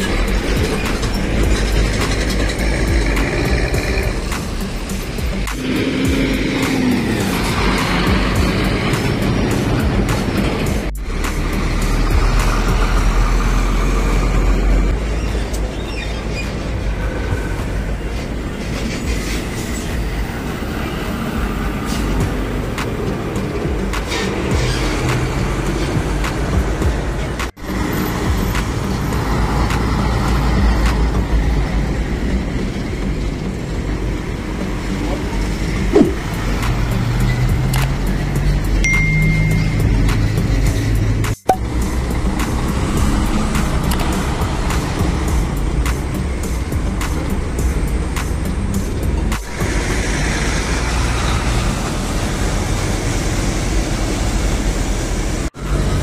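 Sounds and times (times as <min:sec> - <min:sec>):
tyres hissing on wet asphalt: 0:00.0 - 0:38.8, 0:40.0 - 0:56.0
diesel trucks rumbling: 0:00.0 - 0:56.0
tyre hiss on wet road: 0:20.7 - 0:22.2, 0:47.8 - 0:56.0.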